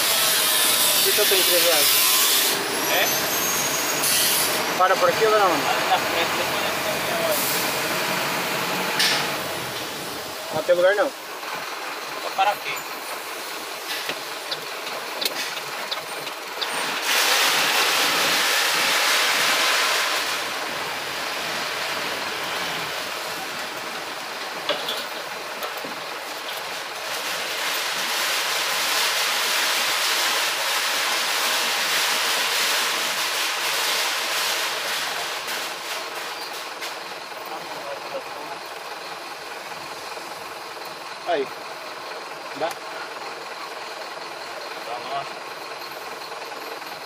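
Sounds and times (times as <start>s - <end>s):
street traffic rushing hiss: 0.0s - 47.0s.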